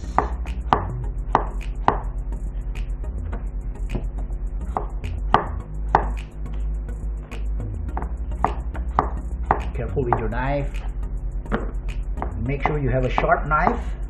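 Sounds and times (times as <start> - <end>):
knife chopping on cutting board: 0.1 - 2.1, 4.7 - 6.2, 7.3 - 10.9, 11.5 - 13.9.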